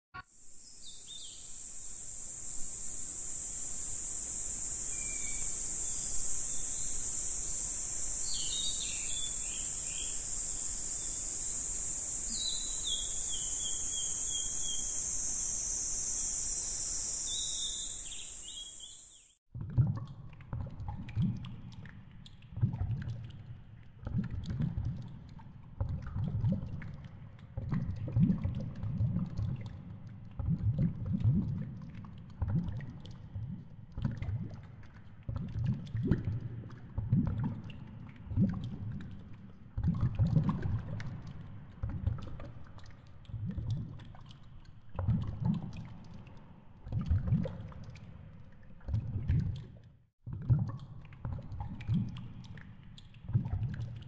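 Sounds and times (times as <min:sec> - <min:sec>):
birds chirping: 0:08.2 - 0:11.6, 0:12.2 - 0:15.4, 0:16.2 - 0:19.3.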